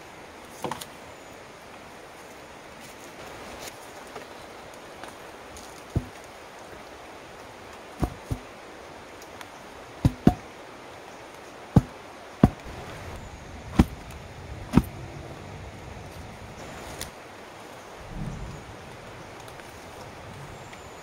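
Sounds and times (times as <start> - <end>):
pole thudding into earth: 8.0 - 8.4, 10.0 - 10.4, 11.8 - 12.7.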